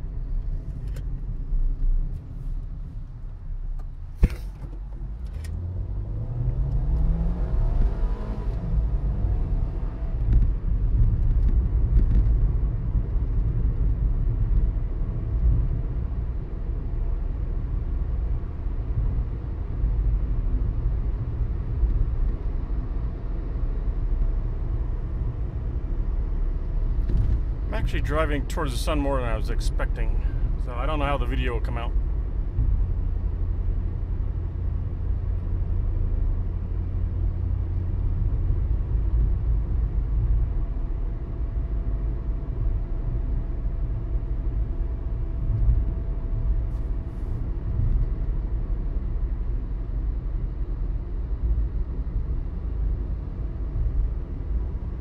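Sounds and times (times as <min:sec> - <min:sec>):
engine and tyres rumbling: 0:00.0 - 0:55.0
car engine speeding up: 0:05.6 - 0:10.2.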